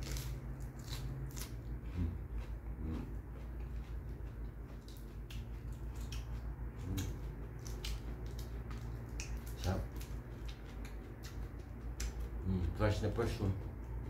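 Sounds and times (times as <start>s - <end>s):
lettuce tearing and crunching: 0.0s - 2.1s, 4.8s - 11.4s
steady low hum: 0.0s - 14.0s.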